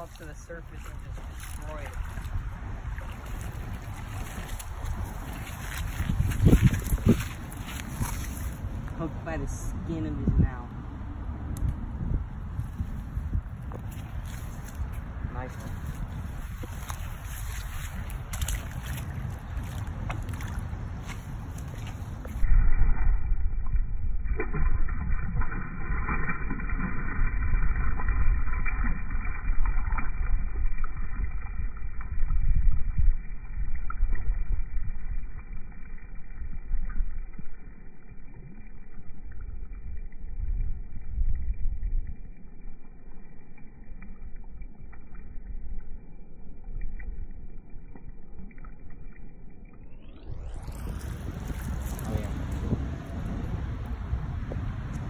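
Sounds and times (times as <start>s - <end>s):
water sloshing around hand: 0.0s - 9.2s, 12.5s - 23.0s, 41.9s - 55.0s
wind buffeting microphone: 0.0s - 37.4s, 39.3s - 42.4s, 50.3s - 55.0s.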